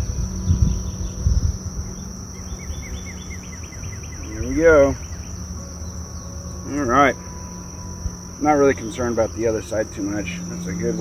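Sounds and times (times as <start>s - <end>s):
wind rumble on microphone: 0.0s - 6.6s
high insect trill: 0.0s - 11.0s
wavering pitched call: 1.9s - 11.0s.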